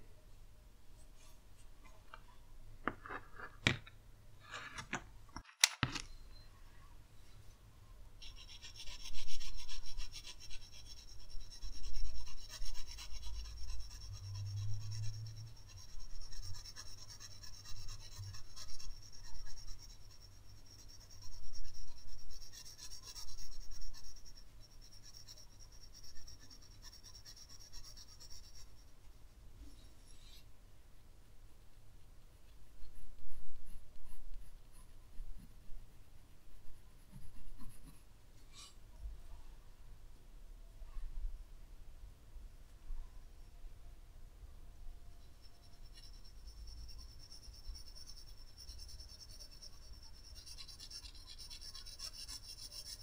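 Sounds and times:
tools clicking and tapping: 0:04.6 - 0:06.1
pencil scratching on paper: 0:08.2 - 0:28.9, 0:32.8 - 0:35.5, 0:37.0 - 0:38.8, 0:45.2 - 0:53.0.

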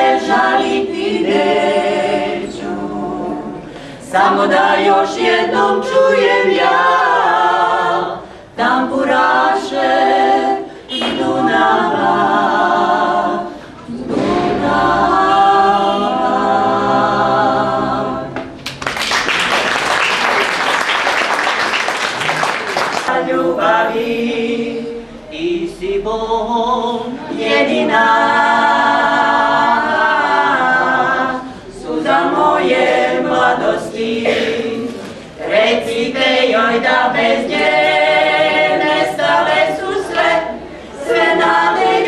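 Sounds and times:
women singing a cappella: 0:00.0 - 0:18.6, 0:23.1 - 0:42.0
applause: 0:18.6 - 0:23.1.

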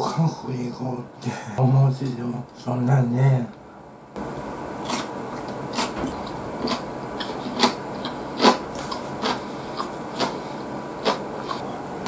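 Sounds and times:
chewing with sharp crackles: 0:04.8 - 0:11.8.

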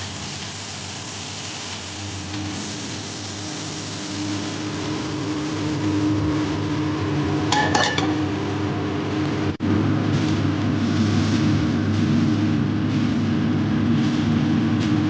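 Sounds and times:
steady hum: 0:01.9 - 0:15.0
frying pan clinking on metal bowl: 0:07.5 - 0:08.2.

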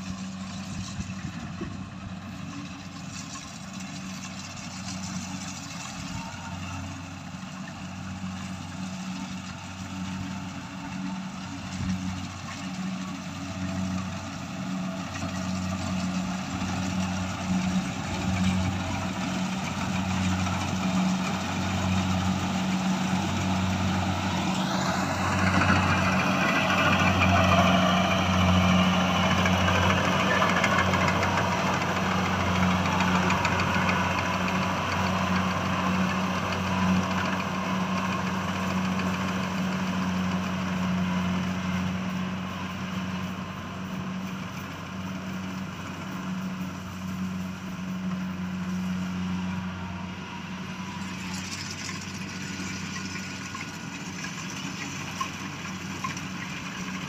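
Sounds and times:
combine harvester running: 0:00.0 - 0:57.0
rising machine whine: 0:14.1 - 0:40.5.

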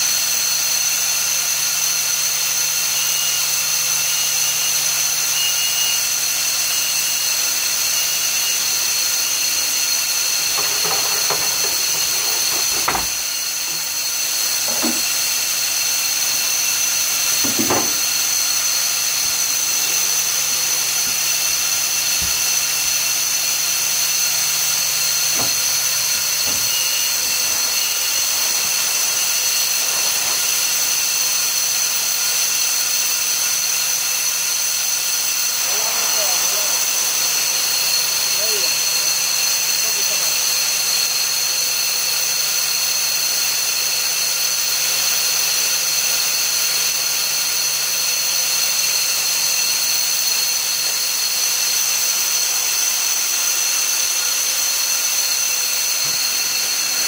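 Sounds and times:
industrial machinery whine and hiss: 0:00.0 - 0:57.0.

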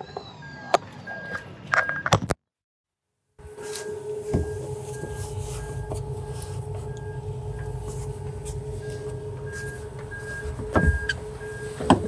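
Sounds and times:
electric outboard motor whine: 0:03.4 - 0:12.0.

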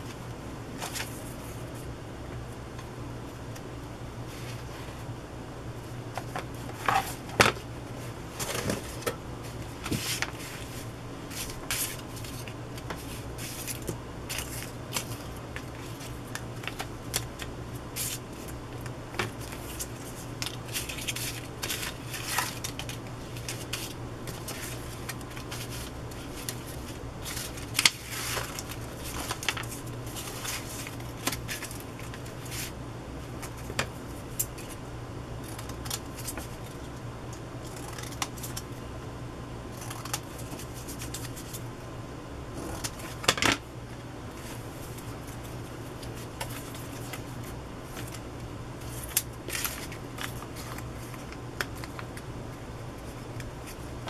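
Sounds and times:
paper rustling and crinkling: 0:00.8 - 0:01.8, 0:06.1 - 0:34.8, 0:44.3 - 0:48.2, 0:48.8 - 0:52.2.

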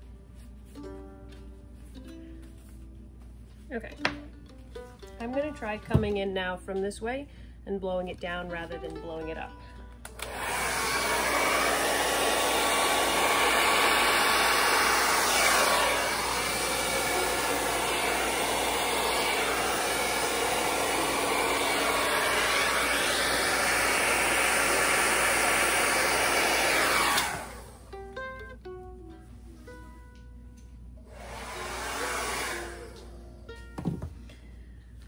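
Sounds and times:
hair dryer blowing air: 0:10.1 - 0:27.9, 0:31.0 - 0:33.2.

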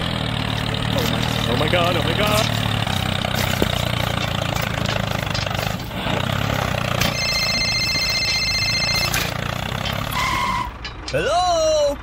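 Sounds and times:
tractor engine drone: 0:00.0 - 0:12.0
electronic phone ringtone: 0:07.0 - 0:09.3.

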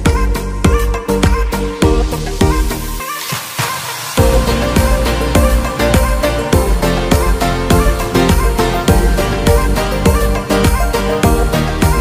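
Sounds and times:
background music with beat and bass: 0:00.0 - 0:12.0.

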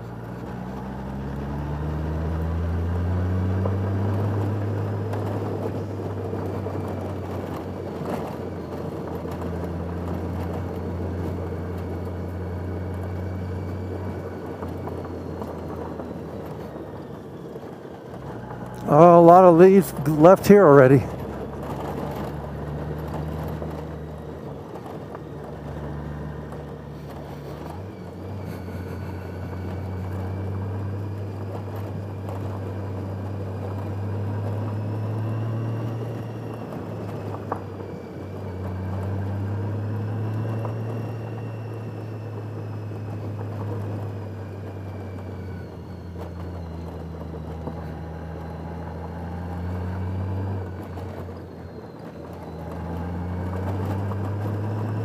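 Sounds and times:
motorcycle engine revving: 0:18.2 - 0:55.0.

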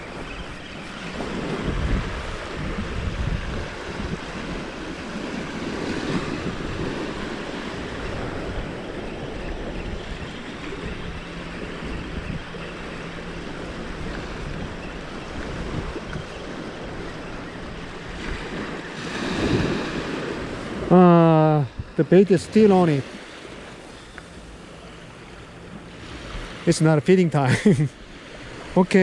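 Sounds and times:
wind buffeting microphone: 0:00.0 - 0:22.4
small waves breaking on sand: 0:00.0 - 0:29.0.

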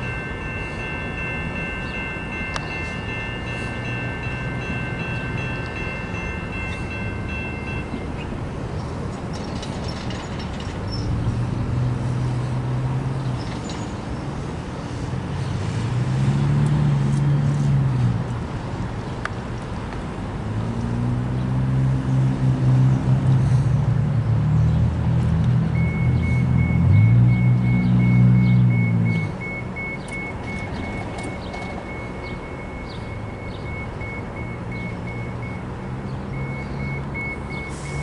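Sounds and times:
railroad crossing bell ringing: 0:00.0 - 0:08.8, 0:25.8 - 0:38.0.

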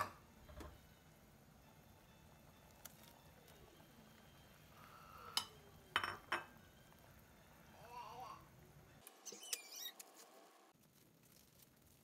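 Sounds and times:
spoon clinking against pot: 0:05.3 - 0:06.6.

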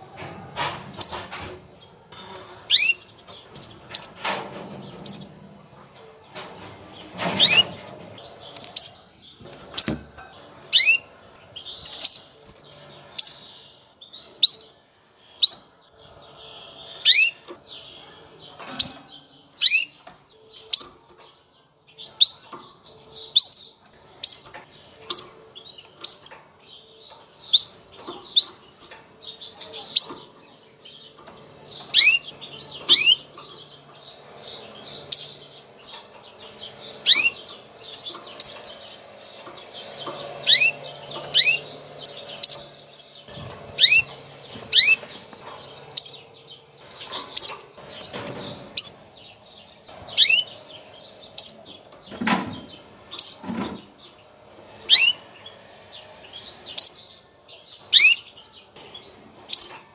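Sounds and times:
canary chirping: 0:00.0 - 0:59.9.

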